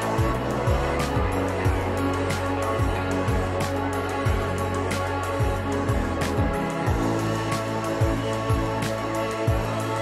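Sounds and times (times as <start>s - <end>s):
steady drum beat: 0.0s - 10.0s.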